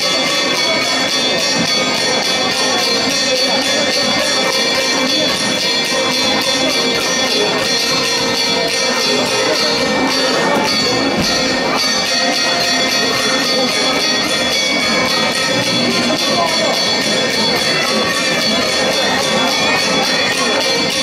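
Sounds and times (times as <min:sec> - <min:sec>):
jingling percussion: 0:00.0 - 0:21.0.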